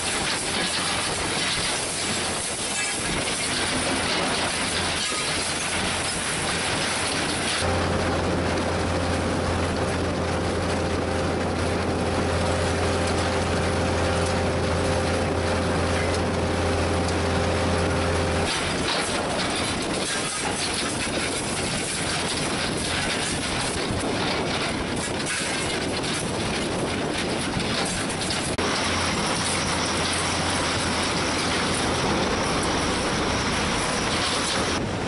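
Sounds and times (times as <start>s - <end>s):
conveyors clattering: 0.0s - 35.0s
low hum with higher tones: 7.6s - 19.5s.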